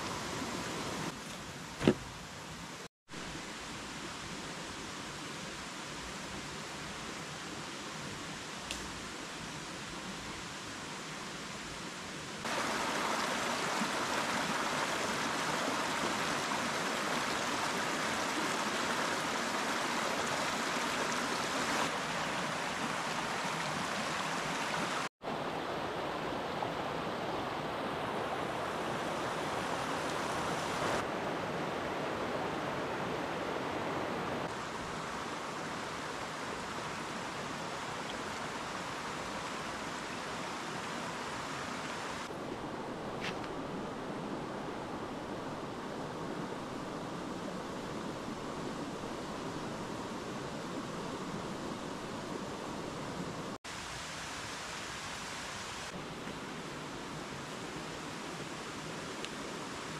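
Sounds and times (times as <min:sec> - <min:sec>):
stream rushing over rocks: 0:00.0 - 0:01.2, 0:01.8 - 0:59.9.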